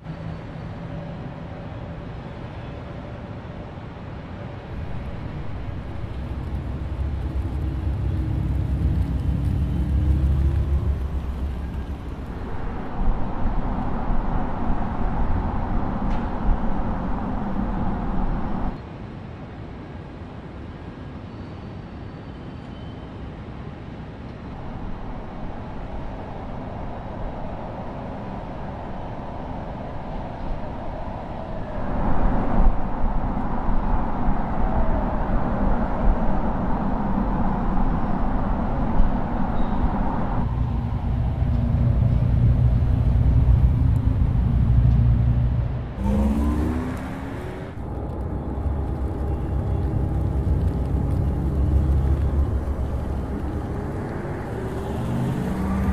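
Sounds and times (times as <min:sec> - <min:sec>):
road noise: 0:00.0 - 0:55.9
car driving hum and whir: 0:04.2 - 0:18.8, 0:35.1 - 0:55.9
short rising sweep: 0:40.4 - 0:55.9.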